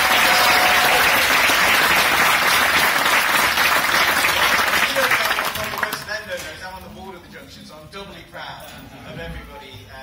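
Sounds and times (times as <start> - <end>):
crowd clapping: 0.0 - 6.2.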